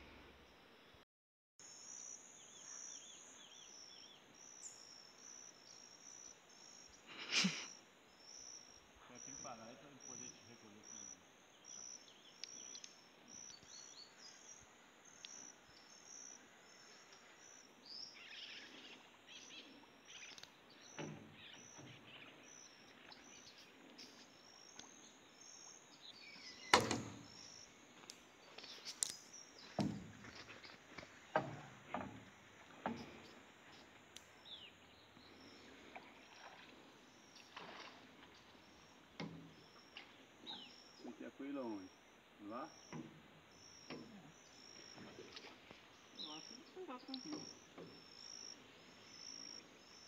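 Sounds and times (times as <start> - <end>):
insects chirping: 1.6 - 50.0
wooden boat knocks and thumps: 26.7 - 27.4, 29.6 - 33.4.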